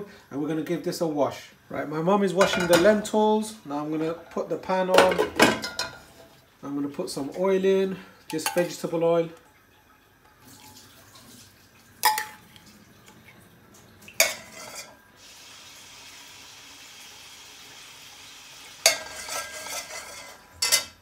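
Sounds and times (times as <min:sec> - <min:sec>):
bowl clattering on pot: 0:02.4 - 0:03.0, 0:04.9 - 0:06.1, 0:12.0 - 0:12.4, 0:14.2 - 0:15.0, 0:18.8 - 0:21.0
oil sizzling in pot: 0:13.8 - 0:21.0.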